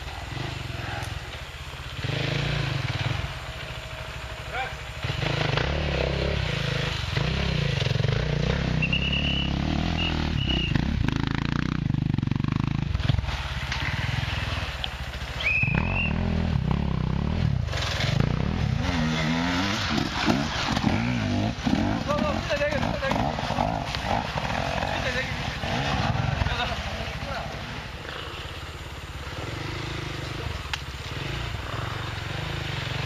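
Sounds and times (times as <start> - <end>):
dirt bike engines revving: 0.0 - 33.0
dirt bike passing close: 0.0 - 33.0.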